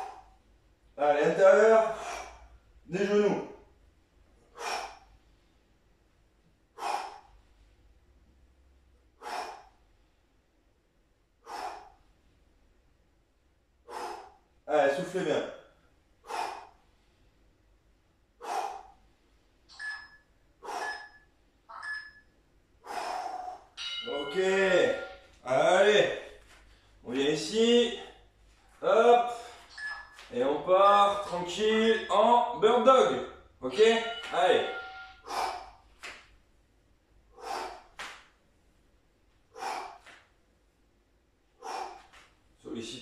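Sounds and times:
man breathing forcefully: 0:00.0 - 0:00.5, 0:01.8 - 0:02.8, 0:04.3 - 0:05.7, 0:06.6 - 0:08.1, 0:09.1 - 0:10.3, 0:11.4 - 0:12.3, 0:13.8 - 0:14.6, 0:16.1 - 0:17.7, 0:18.3 - 0:19.5, 0:20.5 - 0:21.3, 0:22.8 - 0:25.3, 0:33.8 - 0:36.2, 0:37.2 - 0:38.3, 0:39.4 - 0:40.4, 0:41.5 - 0:42.4
whistling exhale: 0:19.7 - 0:21.3, 0:34.8 - 0:35.7
man exhaling hard: 0:37.3 - 0:38.0.

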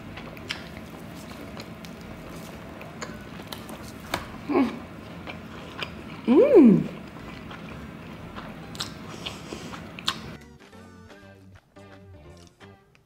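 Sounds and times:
chewing and slurping noodles: 0:00.0 - 0:06.3, 0:06.9 - 0:10.4
person humming: 0:04.4 - 0:04.9, 0:06.2 - 0:07.0.

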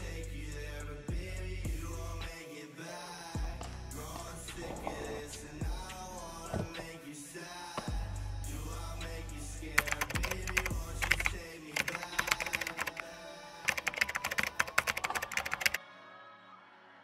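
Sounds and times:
background music: 0:00.0 - 0:17.0
rapid keyboard key clicks: 0:09.8 - 0:13.0, 0:13.7 - 0:15.8.

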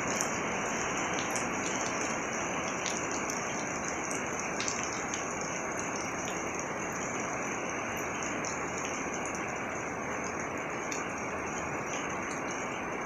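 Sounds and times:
heavy rain on pavement: 0:00.0 - 0:13.0
water dripping: 0:00.0 - 0:13.0.

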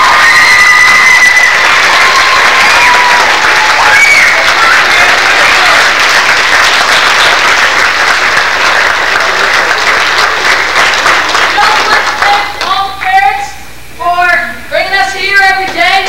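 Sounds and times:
voices cheering: 0:00.0 - 0:07.4
audience applauding: 0:00.0 - 0:12.7.

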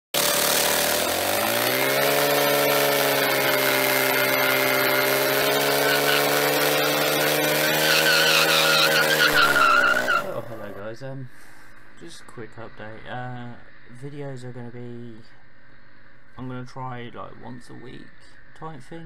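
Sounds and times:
motorcycle engine revving: 0:00.1 - 0:10.8
tyre squealing: 0:00.8 - 0:10.8.

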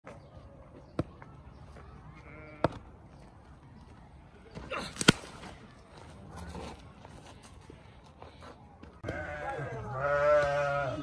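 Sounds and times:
animal bleat: 0:02.2 - 0:02.7, 0:09.0 - 0:11.0.

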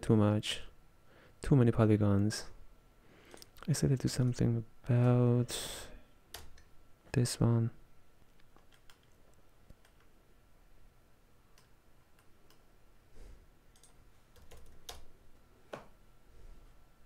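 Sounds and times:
keyboard typing: 0:08.5 - 0:10.1, 0:13.7 - 0:15.1.

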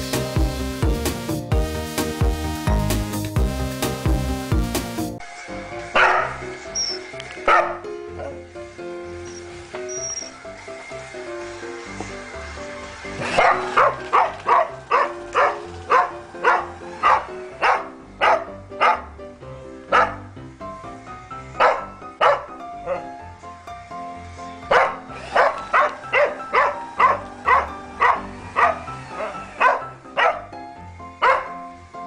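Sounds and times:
background music: 0:00.0 - 0:32.0
dog barking: 0:06.0 - 0:06.5, 0:07.5 - 0:08.4, 0:13.2 - 0:19.1, 0:19.9 - 0:20.3, 0:21.6 - 0:23.1, 0:24.7 - 0:30.5, 0:31.2 - 0:31.6.

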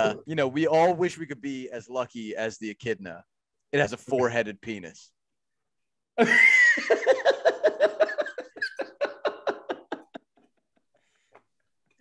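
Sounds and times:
man laughing loudly: 0:06.2 - 0:10.5.

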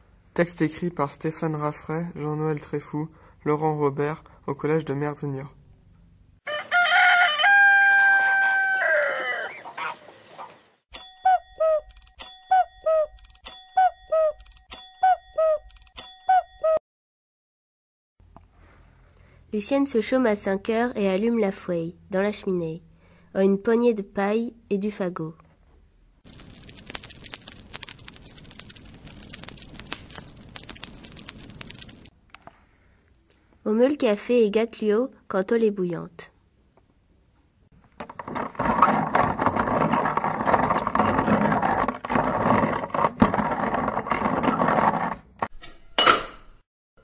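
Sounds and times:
rooster crowing: 0:06.4 - 0:10.0
small bell dinging: 0:10.9 - 0:16.7
fire crackling in a fireplace: 0:26.2 - 0:32.2.

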